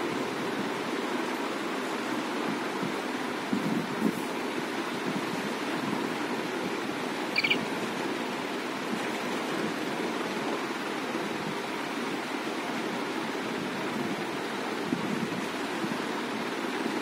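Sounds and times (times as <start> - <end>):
quick high chirps: 7.4 - 7.6.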